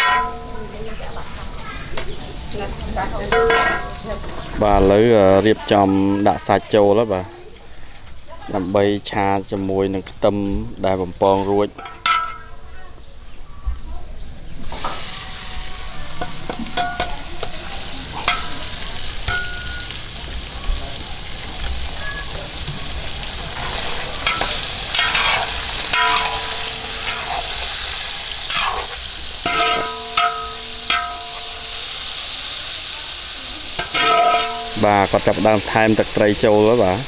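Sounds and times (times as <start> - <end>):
metal spatula scraping wok: 0.0 - 1.2, 3.2 - 4.6, 14.6 - 20.0, 23.3 - 32.9, 33.7 - 36.6
meat sizzling in hot oil: 0.0 - 13.4, 14.1 - 37.0.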